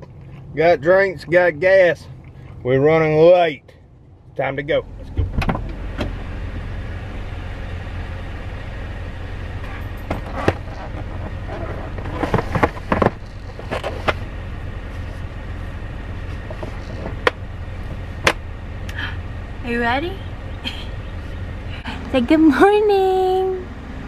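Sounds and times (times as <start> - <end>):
low vehicle hum: 0.0 - 24.0
car seat clicks and plastic knocks: 5.1 - 6.2, 12.0 - 14.2.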